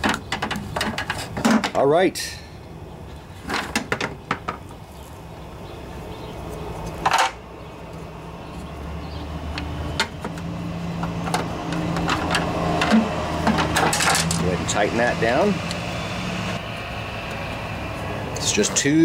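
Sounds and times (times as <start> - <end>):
low engine hum: 4.6 - 19.0.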